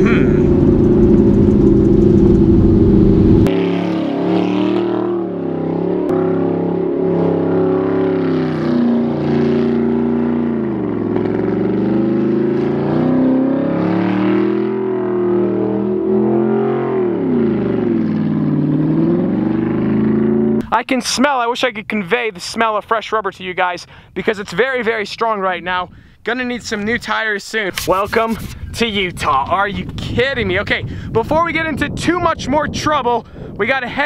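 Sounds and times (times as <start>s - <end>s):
car engine revving: 0.0s - 20.6s.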